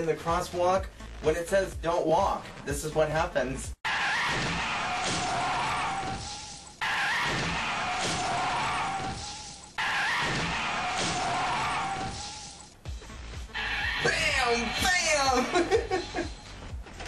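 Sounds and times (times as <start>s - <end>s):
car tyres screeching: 3.9s - 15.9s.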